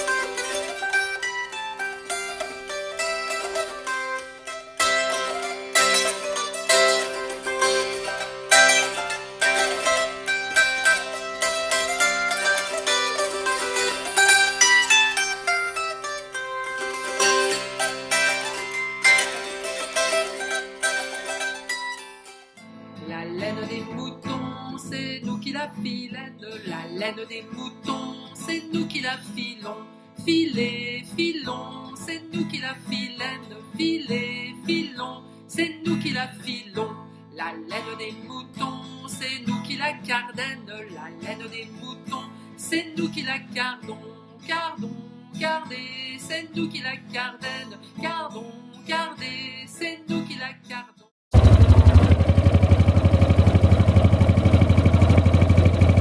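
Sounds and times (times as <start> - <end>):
guitar and mandolin music: 0.0 - 50.8
tractor engine running: 51.3 - 56.0.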